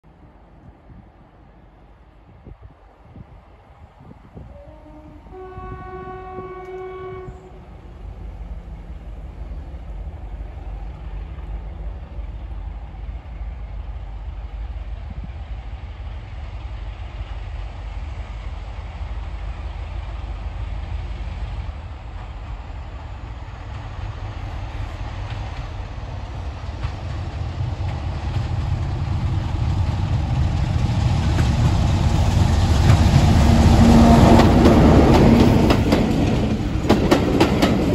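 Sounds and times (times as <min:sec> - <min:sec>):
diesel locomotive engine rumble: 0:00.1 - 0:37.9
locomotive horn: 0:04.5 - 0:07.6, 0:33.5 - 0:35.7.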